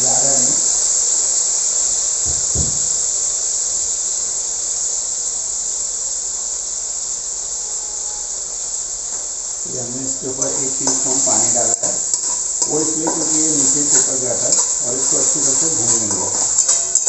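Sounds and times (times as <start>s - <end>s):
paste sizzling in a pan: 0.0s - 17.0s
low thud: 2.2s - 3.0s.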